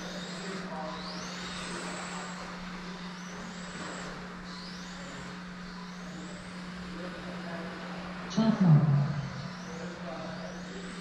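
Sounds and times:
electric motor whining: 0:00.0 - 0:07.4
steady low hum: 0:00.0 - 0:11.0.

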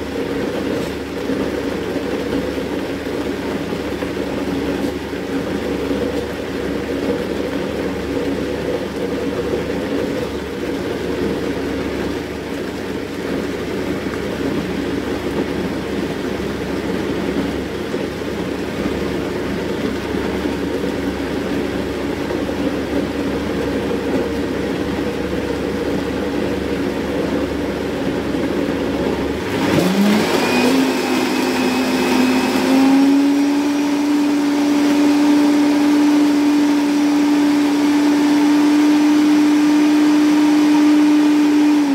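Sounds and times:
blender motor running: 0:29.3 - 0:41.9.

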